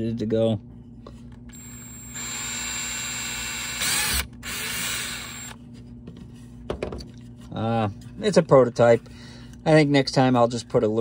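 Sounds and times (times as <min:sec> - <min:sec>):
cordless drill drilling plastic: 0:01.5 - 0:05.6.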